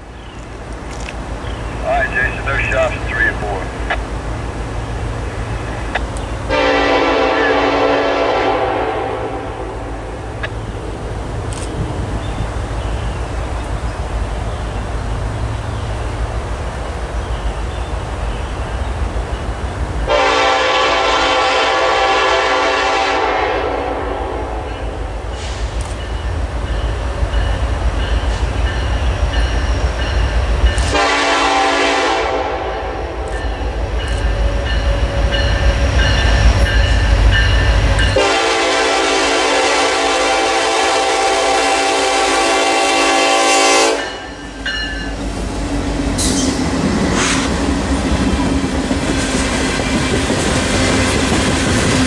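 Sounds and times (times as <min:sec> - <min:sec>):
diesel locomotives rumbling: 0:00.0 - 0:52.0
train horn blasts: 0:06.5 - 0:10.2, 0:20.1 - 0:25.0, 0:30.8 - 0:33.3, 0:34.7 - 0:44.4.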